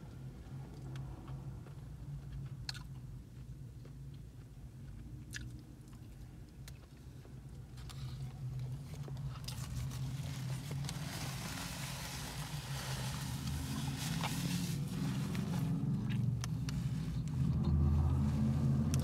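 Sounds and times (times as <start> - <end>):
low hum inside a car: 0.0 - 19.0
person chewing food: 0.7 - 4.2, 4.9 - 9.8.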